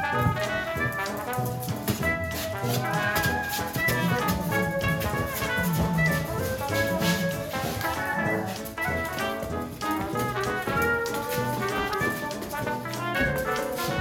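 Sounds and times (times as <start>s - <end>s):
steady drum beat: 0.0s - 14.0s
upbeat jazzy brass music: 0.0s - 14.0s.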